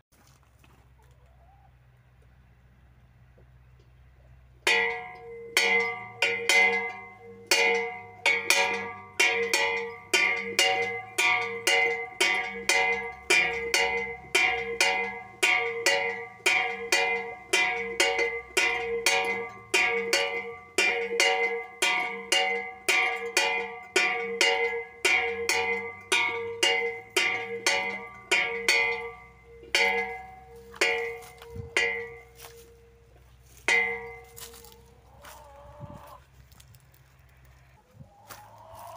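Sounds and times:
metal bell ringing: 4.7s - 34.9s.

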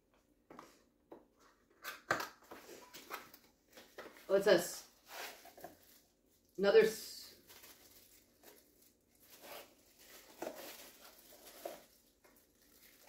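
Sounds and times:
plastic packaging rustling: 2.6s - 6.6s, 7.2s - 13.0s.

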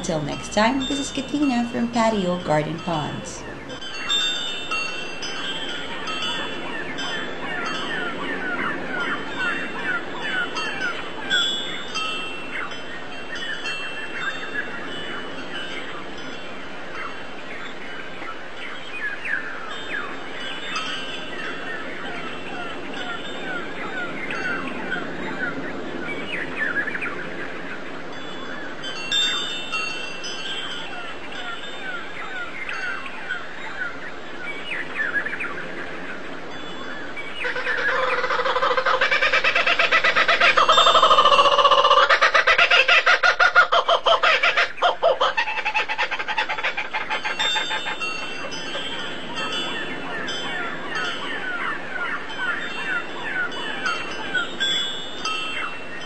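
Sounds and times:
small birds chirping: 28.9s - 42.4s.

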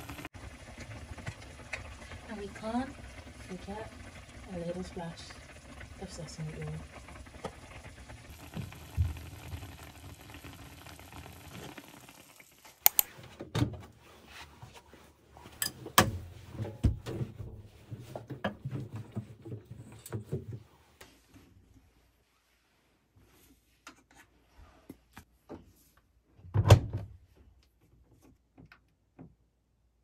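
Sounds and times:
food simmering in a pan: 0.0s - 13.0s
sharp clicks and knocks: 12.8s - 13.1s.

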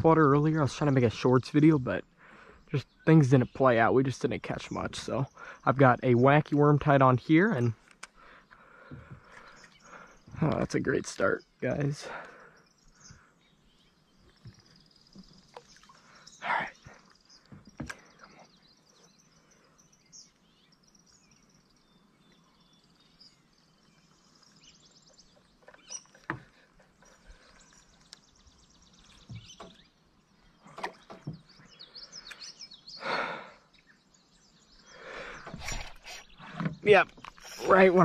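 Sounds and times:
birds chirping faintly: 0.0s - 38.0s.

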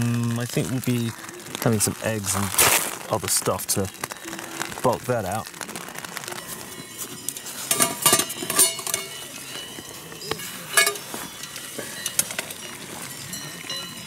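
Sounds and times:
metal cookware clinking: 7.0s - 14.0s.

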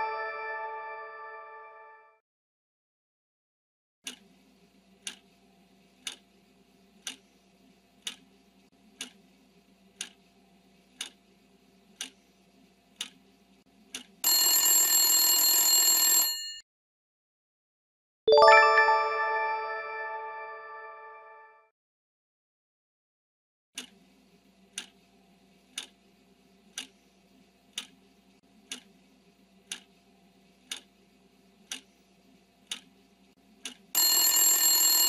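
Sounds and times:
bright chime: 0.0s - 1.7s, 18.3s - 21.1s
alarm bell ringing: 0.0s - 2.0s, 34.0s - 35.0s
timer ticking: 6.0s - 6.2s, 29.7s - 29.9s, 30.7s - 30.9s, 31.7s - 31.9s.

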